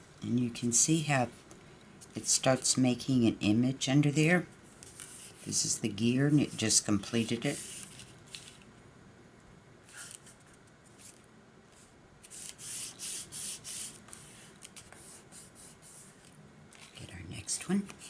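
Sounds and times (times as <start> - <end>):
hands rubbing paper: 9.9 - 17.0.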